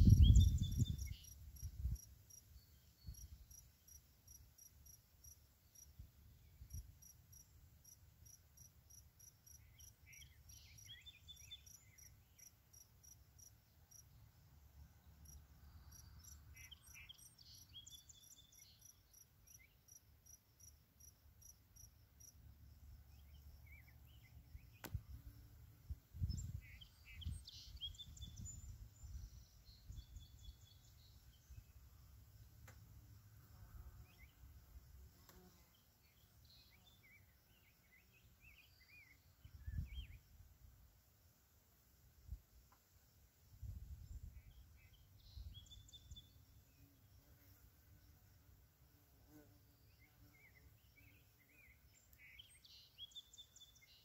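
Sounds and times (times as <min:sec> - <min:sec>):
wind buffeting microphone: 0:00.0 - 0:01.1
bird singing: 0:00.0 - 0:01.7, 0:09.2 - 0:14.3, 0:15.0 - 0:20.0, 0:23.0 - 0:24.9, 0:26.2 - 0:31.9, 0:34.0 - 0:34.4, 0:35.7 - 0:40.3, 0:44.0 - 0:47.2, 0:49.3 - 0:54.0
faint insect chirping: 0:00.0 - 0:54.0.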